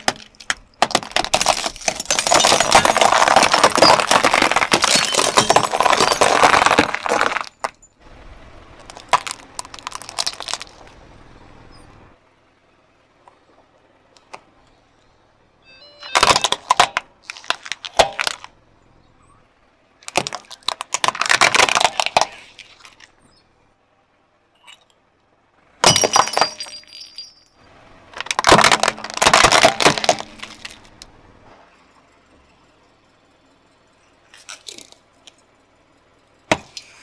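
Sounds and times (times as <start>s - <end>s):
plastic toys cracking and crunching: 0.0s - 7.7s, 8.7s - 11.0s, 16.0s - 18.6s, 20.0s - 23.2s, 28.1s - 31.1s, 34.3s - 35.4s.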